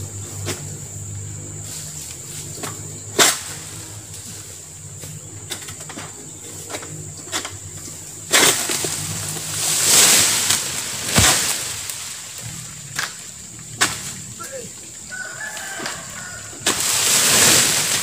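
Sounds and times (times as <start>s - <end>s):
palm fronds rustling and scraping: 0.0s - 18.0s.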